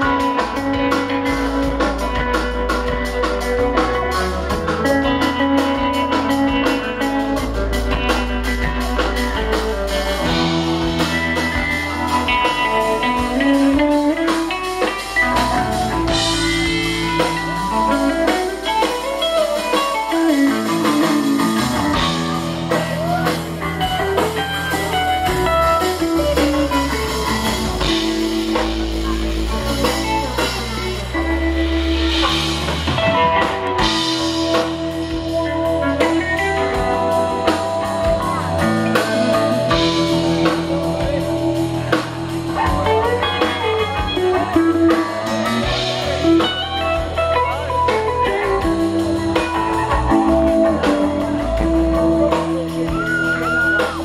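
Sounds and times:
bass guitar: 0.0 - 54.0
drum kit: 0.0 - 54.0
electric guitar lines: 0.0 - 54.0.

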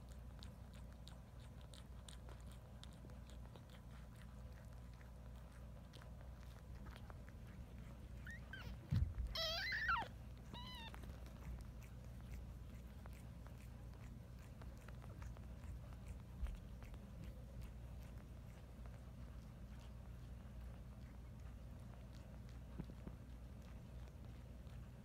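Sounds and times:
kitten mewing: 8.2 - 11.6.

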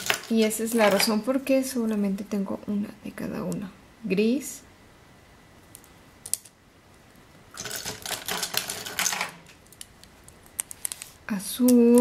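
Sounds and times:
plastic pens clicking and rattling: 7.6 - 9.9.

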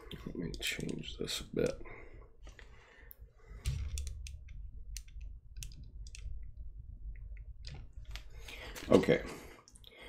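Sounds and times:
keyboard and mouse clicks: 0.1 - 1.0, 3.1 - 8.3.

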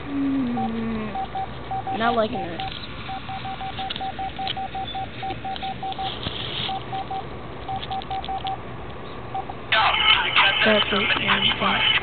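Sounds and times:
phone keypad beeps: 0.6 - 6.1, 6.7 - 8.6.

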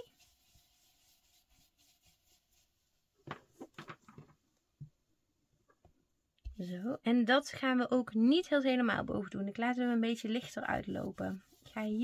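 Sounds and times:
soft brush scuffs on glass: 0.0 - 2.9, 10.2 - 12.0.

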